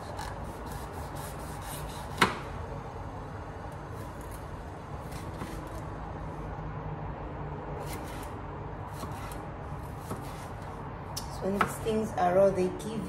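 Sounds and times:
knife slicing on cutting board: 10.0s - 10.6s.

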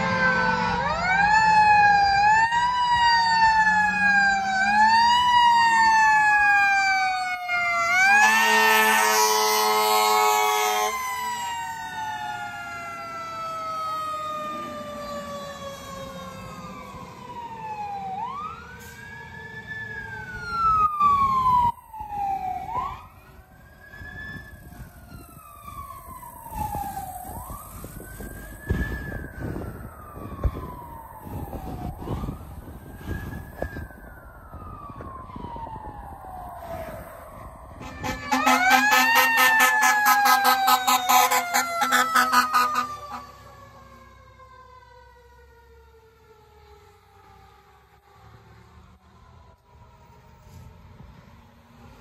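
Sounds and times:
fire engine air horn: 0.0s - 1.4s, 3.4s - 12.9s, 18.8s - 19.2s, 36.6s - 44.1s
emergency siren wailing: 0.0s - 52.0s
siren sliding down in pitch: 0.0s - 52.0s.

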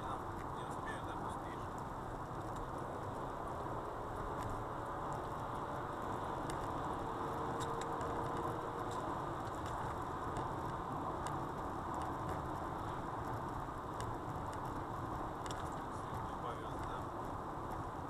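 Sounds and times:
car road and engine noise: 0.0s - 18.0s
faint ticks: 4.1s - 17.0s.

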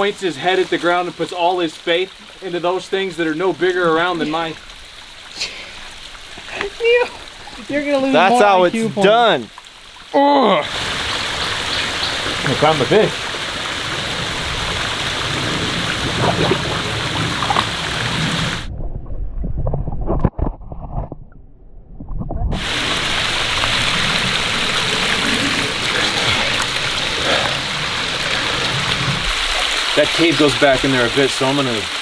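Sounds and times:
waterfall splashing into pool: 0.0s - 18.7s, 22.5s - 32.0s
muffled underwater bubbling: 15.2s - 20.2s, 22.0s - 29.8s.

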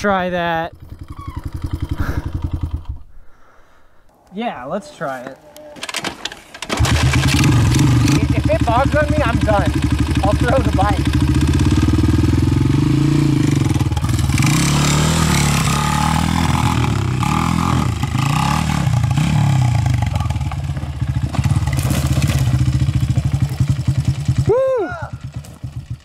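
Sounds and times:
motorcycle engine climbing: 0.0s - 3.3s, 4.0s - 26.0s
bike knocks and clatter: 20.2s - 23.7s, 25.3s - 26.0s.

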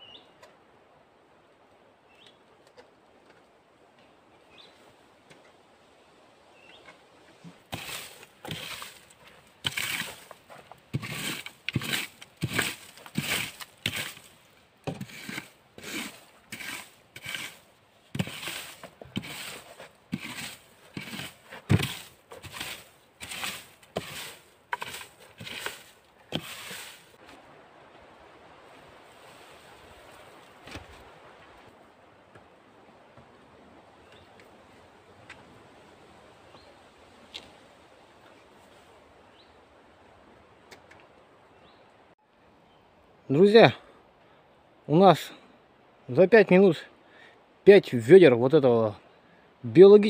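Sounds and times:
rake scraping pine needles: 7.5s - 27.2s.

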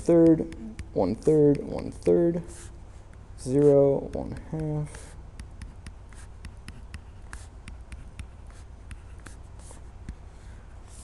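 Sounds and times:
low steady hum: 0.0s - 11.0s
stylus tapping on tablet: 0.1s - 2.2s, 3.1s - 9.4s
stylus scratchy strokes: 0.1s - 9.9s.

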